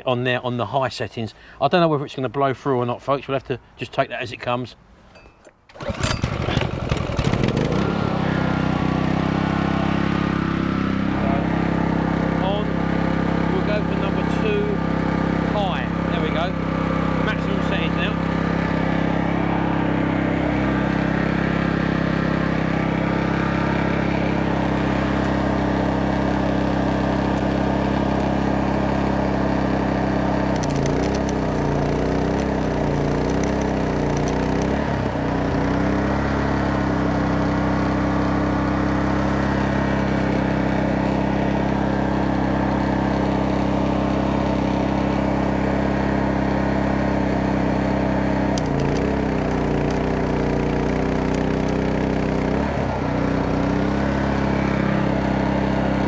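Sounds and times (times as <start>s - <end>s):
generator engine running: 5.7s - 56.0s
welding arc crackling: 17.3s - 29.2s, 29.8s - 35.9s, 47.7s - 55.2s.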